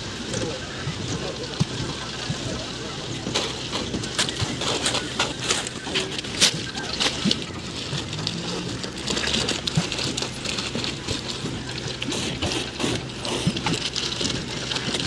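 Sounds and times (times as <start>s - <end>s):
low engine hum: 0.0s - 15.0s
wet concrete gushing and splattering: 0.0s - 15.0s.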